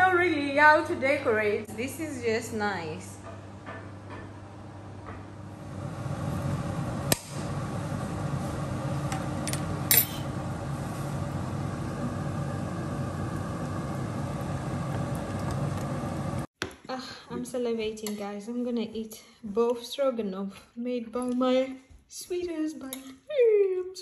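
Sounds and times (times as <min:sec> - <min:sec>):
steady hum: 0:00.0 - 0:16.5.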